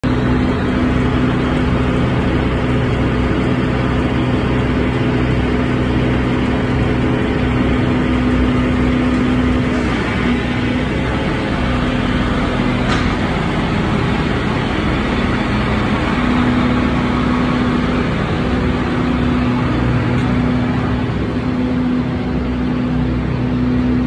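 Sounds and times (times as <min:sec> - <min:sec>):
tub grinder chopping straw: 0:00.0 - 0:16.9.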